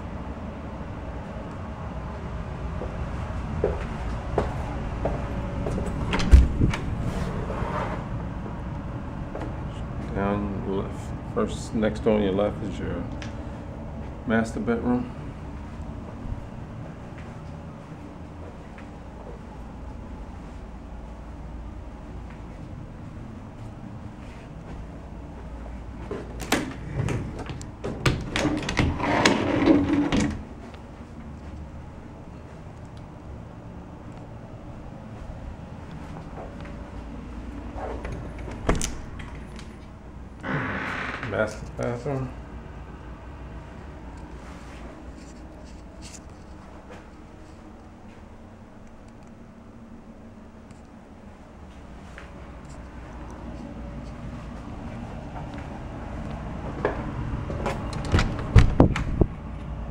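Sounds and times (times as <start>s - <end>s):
low steady rumble: 0.0s - 59.9s
folding doors clattering: 26.4s - 30.5s, 57.7s - 59.2s
door clicks and knocks: 58.0s - 59.2s
door thump: 58.2s - 59.1s.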